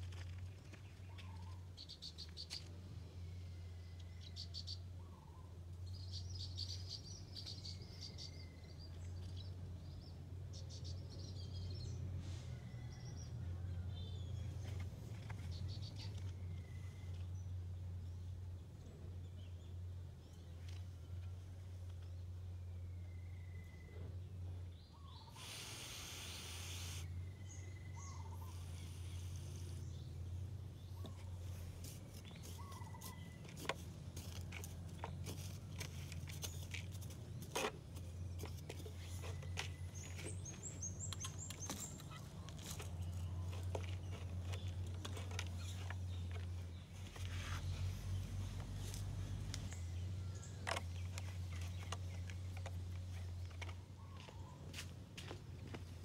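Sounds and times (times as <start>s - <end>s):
birds chirping: 22.8s - 48.6s
pressure sprayer hissing: 25.4s - 27.1s.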